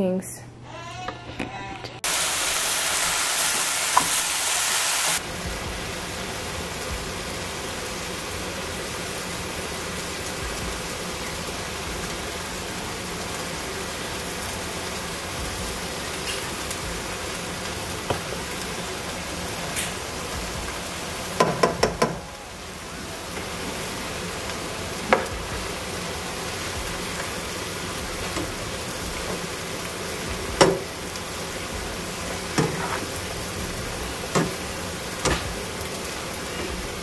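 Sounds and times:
vegetables sizzling in oil: 2.0s - 37.0s
stirring knocks in pan: 21.4s - 22.2s, 30.5s - 30.9s, 32.3s - 33.1s, 35.2s - 35.6s.

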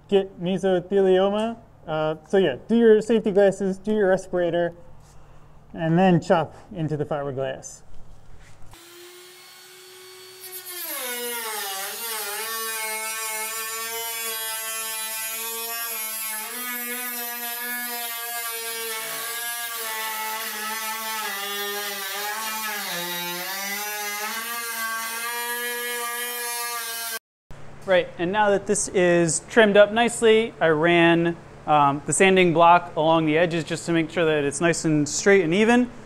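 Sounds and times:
rotary tool cutting fiberglass: 8.7s - 27.2s.

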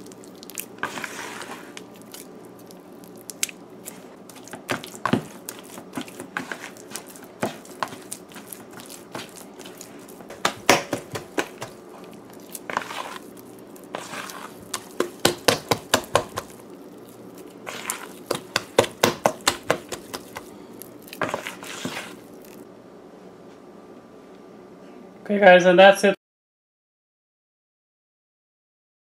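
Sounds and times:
hand slapping batter in bowl: 4.3s - 13.2s, 14.0s - 16.6s, 17.6s - 22.2s.

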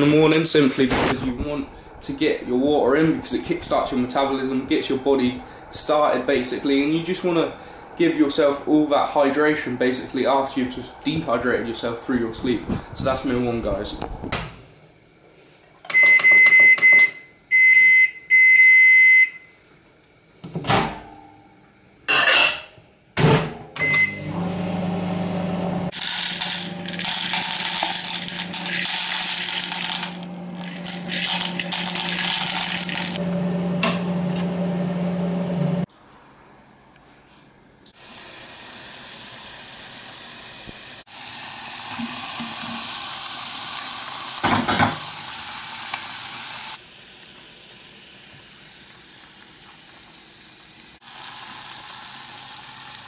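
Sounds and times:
microwave humming with hiss: 0.0s - 53.0s
microwave oven beeping: 15.9s - 19.6s, 23.7s - 25.9s.

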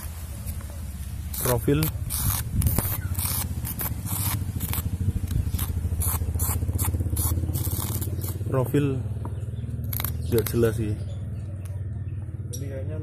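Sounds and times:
scraping strokes: 1.3s - 8.5s.

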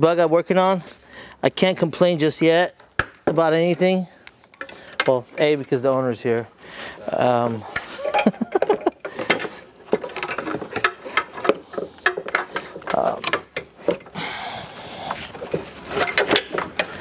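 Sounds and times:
hand tool clicks and knocks: 7.8s - 14.2s, 15.5s - 17.0s.

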